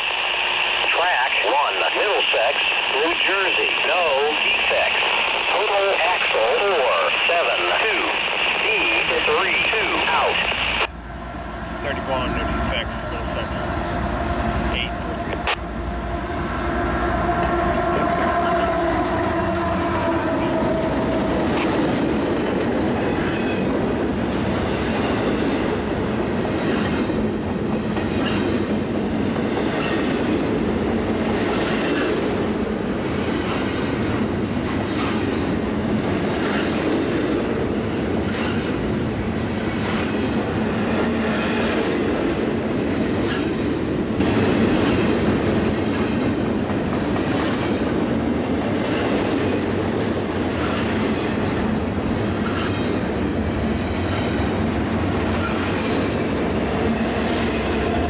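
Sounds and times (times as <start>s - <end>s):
freight cars rumbling: 9.3s - 58.0s
train horn: 14.9s - 21.5s.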